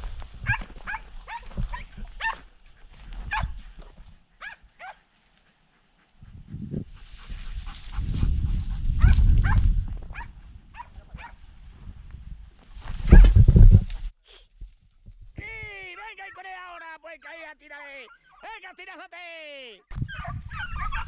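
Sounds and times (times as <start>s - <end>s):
hounds yelping: 0.4s - 6.4s, 9.0s - 11.4s, 17.8s - 18.5s, 20.0s - 21.0s.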